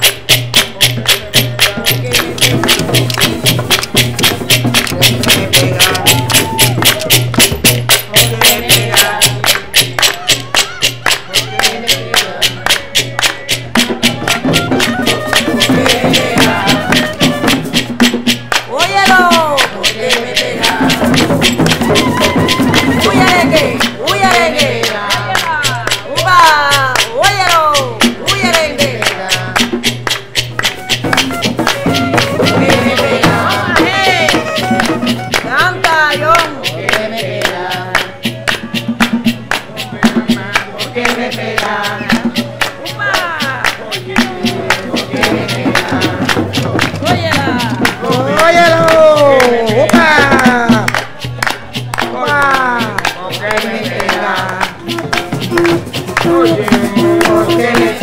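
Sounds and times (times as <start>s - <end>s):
person singing: 0.0s - 18.0s, 18.6s - 58.0s
hand drums beaten quickly: 0.0s - 58.0s
sharp percussion strokes: 0.0s - 58.0s
clarinet melody: 14.2s - 18.0s, 21.7s - 23.6s, 30.6s - 36.0s, 54.8s - 57.8s.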